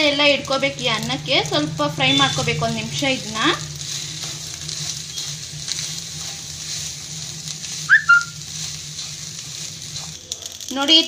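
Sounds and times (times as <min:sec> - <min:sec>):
rice sizzling in pan: 0:00.0 - 0:11.0
wooden spatula stirring: 0:00.9 - 0:10.5
whistle-like chirp: 0:07.9 - 0:08.4.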